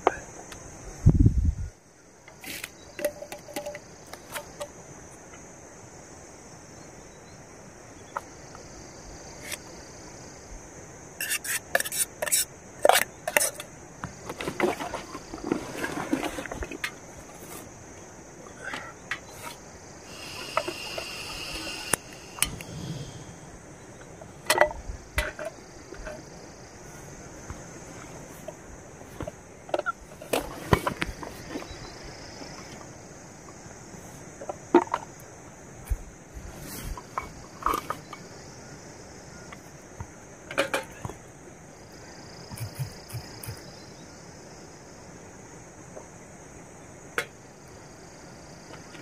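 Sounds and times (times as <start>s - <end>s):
steady high hiss: 0.0s - 49.0s
gas hissing from burner: 20.0s - 23.6s.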